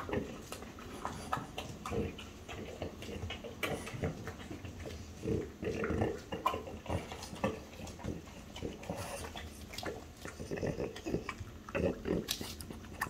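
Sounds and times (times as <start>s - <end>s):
dog sniffing and snuffling: 0.0s - 13.0s.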